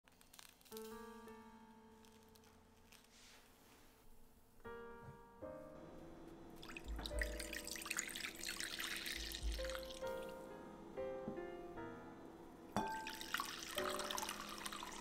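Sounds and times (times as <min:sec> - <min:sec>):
soft piano music: 0:00.6 - 0:15.0
liquid pouring into a bowl: 0:06.6 - 0:10.3, 0:12.8 - 0:15.0.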